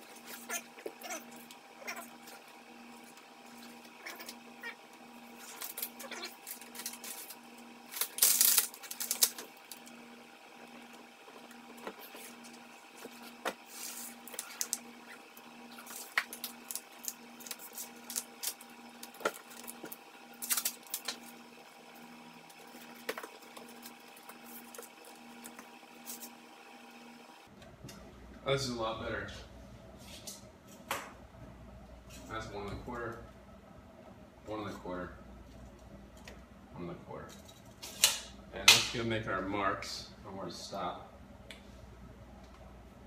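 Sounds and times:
masking tape crackling and ripping: 3.6s - 10.0s, 11.9s - 21.4s.

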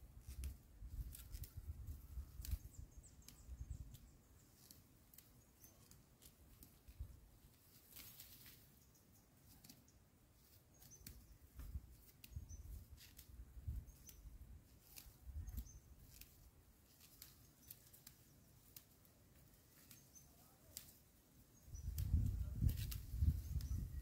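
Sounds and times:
faint high chirp: 10.7s - 11.7s, 15.4s - 16.0s.

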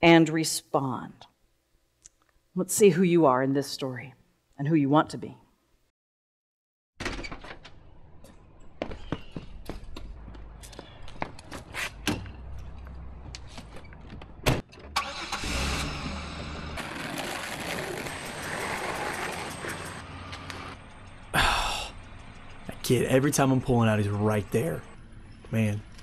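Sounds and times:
car engine starting and running: 14.0s - 21.3s.

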